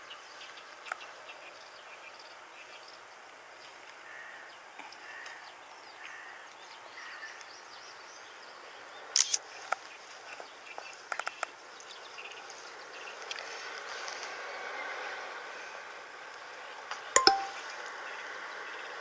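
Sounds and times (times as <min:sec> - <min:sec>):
sharp clicks: 0:09.2 - 0:09.4.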